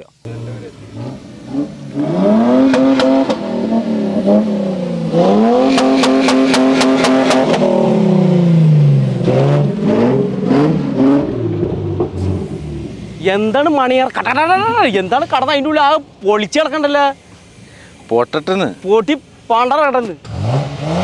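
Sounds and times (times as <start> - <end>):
car engine revving hard: 0.3 - 15.6, 20.2 - 21.0.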